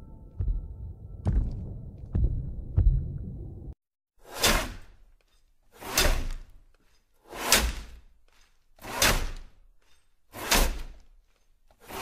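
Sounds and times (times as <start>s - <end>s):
saw cutting through ice: 5.7s - 12.0s.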